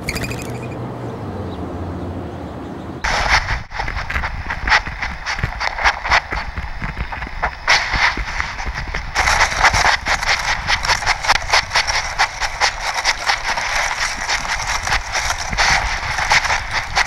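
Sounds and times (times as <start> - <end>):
grass and twigs scraping camera: 3.0 - 17.0.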